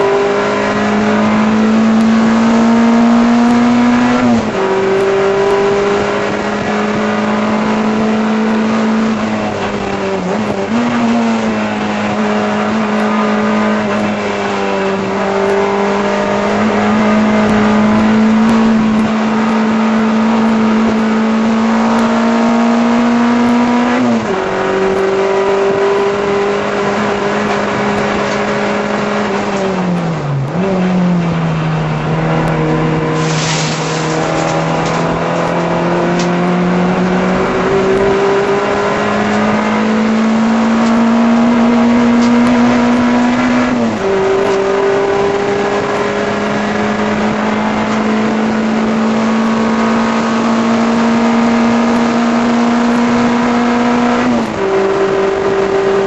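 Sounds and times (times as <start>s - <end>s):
race car engine at high revs: 0.0s - 56.0s
brief high hiss: 33.2s - 34.0s.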